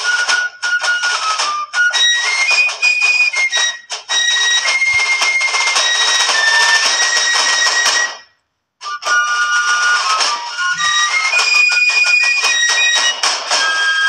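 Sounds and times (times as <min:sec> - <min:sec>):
high melody over busy accompaniment: 0:00.1 - 0:08.0.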